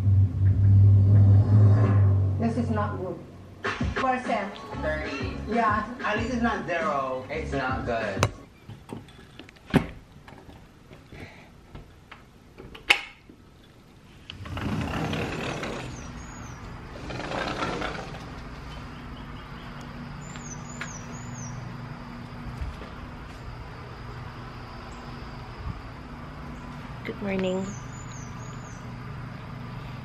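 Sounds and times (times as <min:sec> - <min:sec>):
low engine hum: 0:00.0 - 0:03.6, 0:14.3 - 0:30.0
vehicles rushing by: 0:00.0 - 0:08.4, 0:14.3 - 0:30.0.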